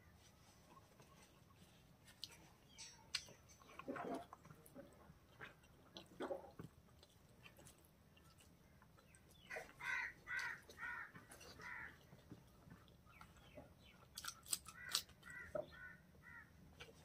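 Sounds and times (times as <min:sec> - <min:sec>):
faint chewing: 0:00.0 - 0:15.9, 0:16.7 - 0:17.0
crow cawing: 0:09.5 - 0:11.9, 0:14.8 - 0:16.5.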